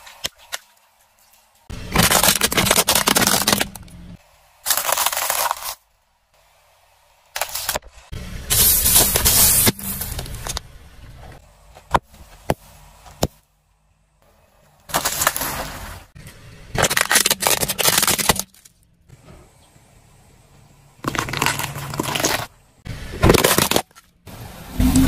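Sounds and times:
car tyre crushing objects: 0:01.7 - 0:05.8, 0:14.9 - 0:19.3, 0:21.0 - 0:25.0
plastic toys breaking: 0:01.9 - 0:03.9, 0:16.8 - 0:18.8, 0:23.2 - 0:24.1.

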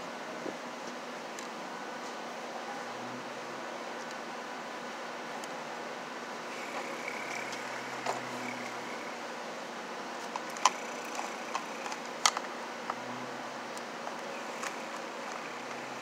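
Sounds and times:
steady background hiss: 0:00.0 - 0:16.0
wires clicking against plastic box: 0:10.3 - 0:13.0, 0:13.8 - 0:16.0.

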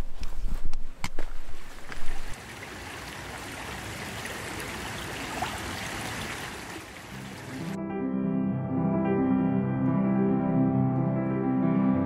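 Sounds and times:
stream rushing over rocks: 0:02.1 - 0:07.8.

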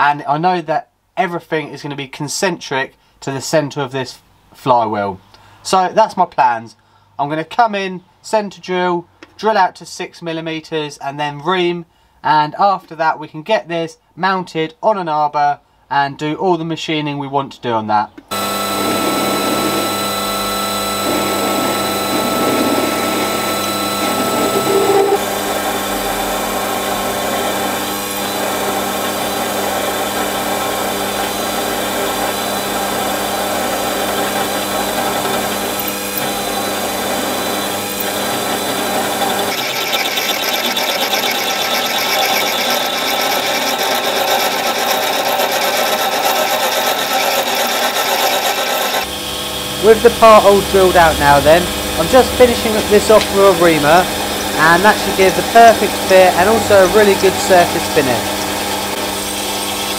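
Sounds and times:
drill cutting metal: 0:18.3 - 0:59.9
lathe motor whine: 0:18.3 - 0:59.9.

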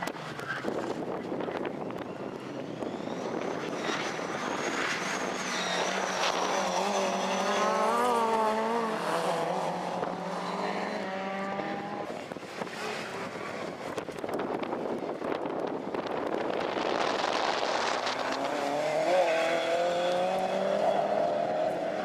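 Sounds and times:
rally car engines: 0:00.0 - 0:22.0
high-pitched whine: 0:01.8 - 0:09.0.

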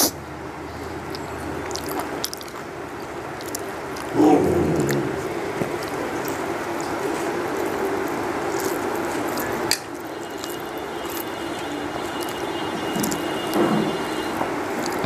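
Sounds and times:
wet chewing: 0:01.0 - 0:15.0
fingers squishing rice: 0:03.3 - 0:15.0.

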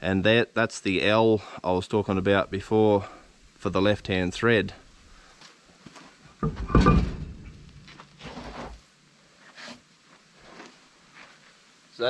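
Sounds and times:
faint scuffs and knocks: 0:05.2 - 0:11.6
heavy wheel scraping thud: 0:06.4 - 0:08.8.

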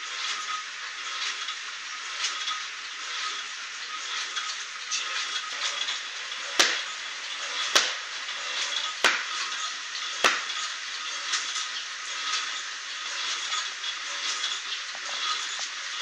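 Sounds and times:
steady background hiss: 0:00.0 - 0:16.0
felt slapping on concrete floor: 0:06.6 - 0:06.9, 0:07.7 - 0:08.0, 0:09.0 - 0:09.4, 0:10.2 - 0:10.6.

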